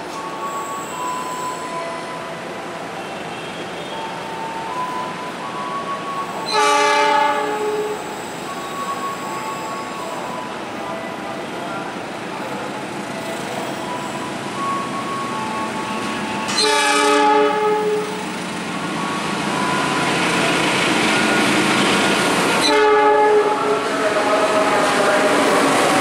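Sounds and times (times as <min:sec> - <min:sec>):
train engine and wheel noise: 0:00.0 - 0:26.0
locomotive horn blasts: 0:06.4 - 0:08.1, 0:16.5 - 0:18.2, 0:22.6 - 0:25.7.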